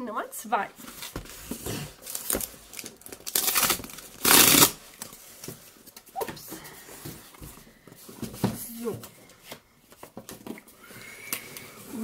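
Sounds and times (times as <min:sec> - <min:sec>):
rustling and handling: 0:00.8 - 0:12.0
parcel packaging tearing: 0:02.0 - 0:04.8.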